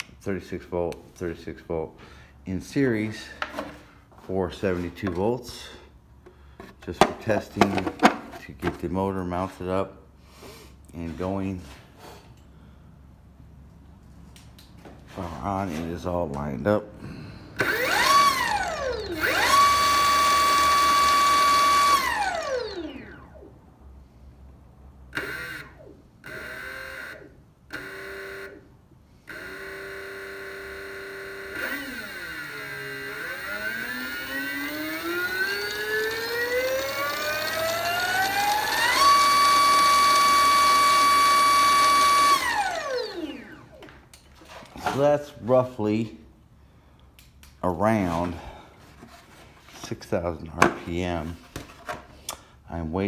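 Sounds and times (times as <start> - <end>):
electric motor whining: 17.6 - 23.4, 25.2 - 28.6, 29.3 - 43.7.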